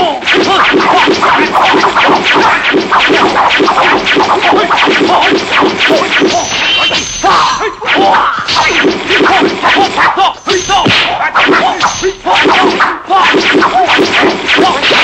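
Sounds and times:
fighters shouting: 0:00.0 - 0:02.7, 0:04.4 - 0:15.0
punch and slap whacks: 0:00.2 - 0:07.2, 0:07.9 - 0:10.2, 0:10.8 - 0:15.0.

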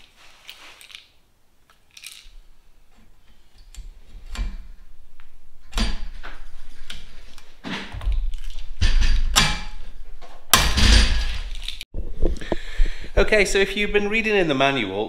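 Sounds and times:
hand tools and metal parts clinking: 0:00.0 - 0:04.4.

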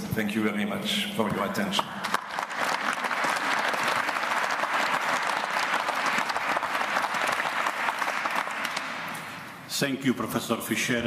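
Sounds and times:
audience applauding: 0:02.0 - 0:09.4.

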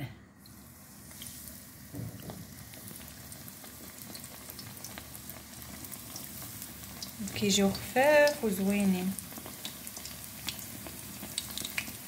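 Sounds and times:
dough sizzling in hot oil: 0:00.4 - 0:12.0.

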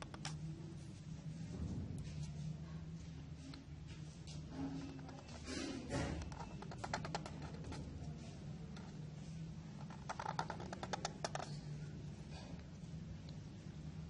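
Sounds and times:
steady low hum: 0:00.0 - 0:14.0
marker scratching on paper: 0:04.5 - 0:11.8.

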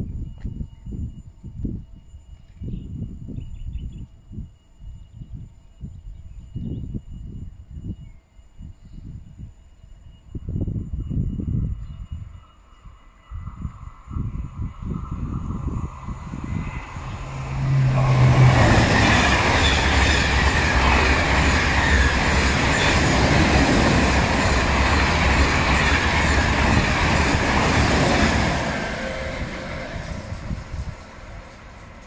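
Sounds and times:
high-speed train passing: 0:10.2 - 0:32.0.

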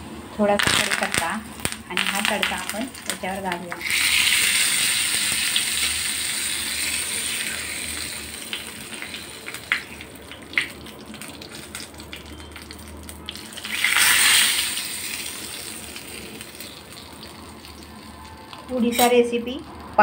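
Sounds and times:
hot oil hissing: 0:00.0 - 0:12.0, 0:12.6 - 0:20.0.

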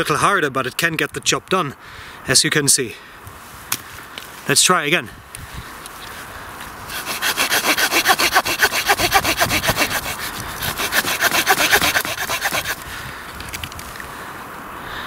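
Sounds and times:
saw cutting through wood: 0:06.9 - 0:12.8.

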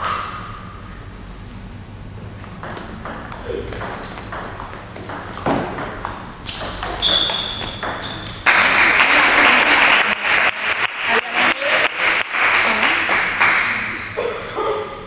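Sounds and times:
table tennis ball hitting rackets: 0:02.4 - 0:09.0.

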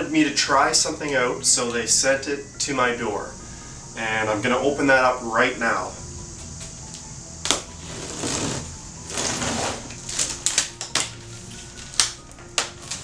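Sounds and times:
cardboard flaps crackling: 0:07.5 - 0:13.0.

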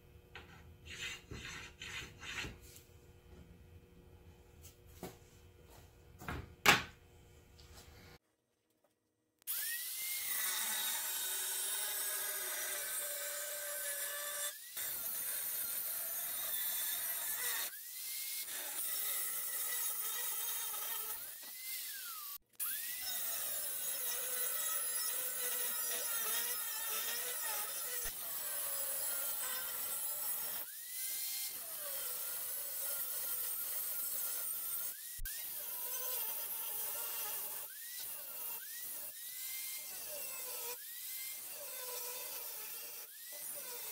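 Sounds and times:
angle grinder cutting metal: 0:09.5 - 0:43.9.

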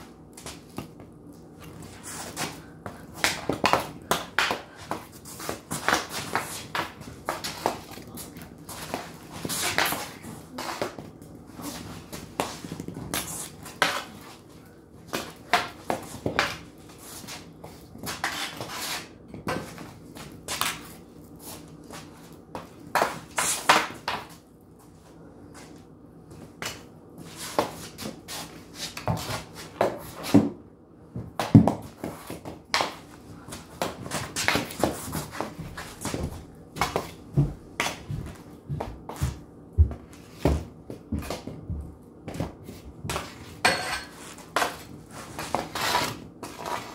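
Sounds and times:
hockey stick clacking on concrete: 0:03.2 - 0:08.0.

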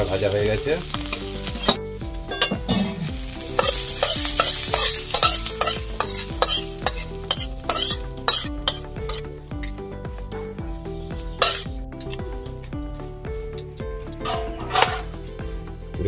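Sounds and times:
metal spoon scraping a wok: 0:01.1 - 0:01.8, 0:02.4 - 0:09.3, 0:11.4 - 0:12.2, 0:14.2 - 0:15.2.

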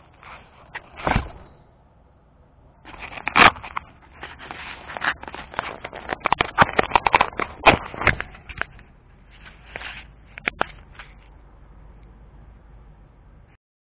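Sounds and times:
camera rustling against shirt: 0:00.0 - 0:01.6, 0:02.8 - 0:11.4
clicks and knocks: 0:02.9 - 0:11.3.

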